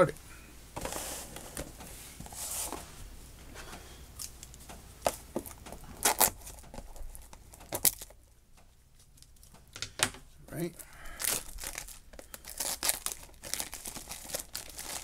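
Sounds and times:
cellophane crinkling: 0:04.2 - 0:08.2, 0:10.8 - 0:15.0.

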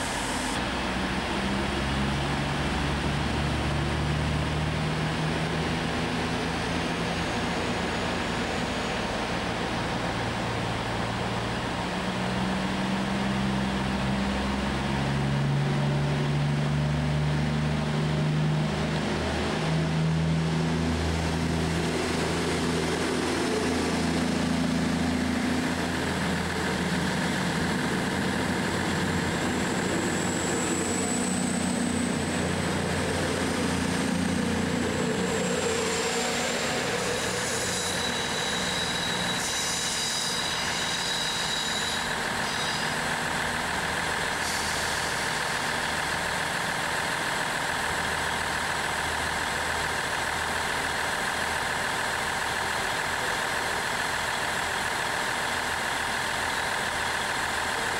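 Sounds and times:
diesel train engines running: 0:00.0 - 0:57.9
high whine: 0:17.4 - 0:43.0.

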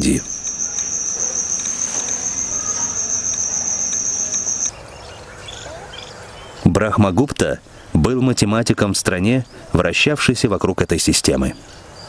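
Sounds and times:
crickets chirring: 0:00.0 - 0:04.8.

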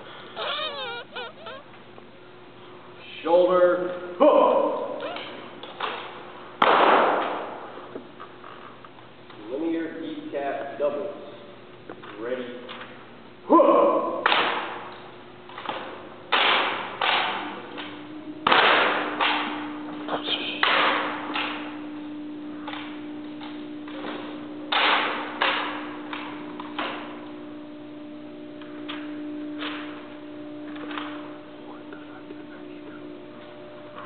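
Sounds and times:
faint steady hum: 0:00.0 - 0:34.0
rifles slapped between hands: 0:06.6 - 0:07.4, 0:14.2 - 0:14.8, 0:15.6 - 0:19.6, 0:20.6 - 0:21.6, 0:22.7 - 0:27.0.

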